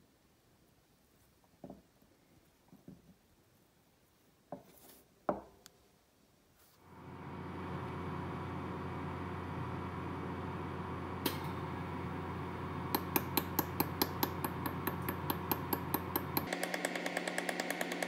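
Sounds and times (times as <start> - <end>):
laser welding machine humming: 6.9 - 18.0.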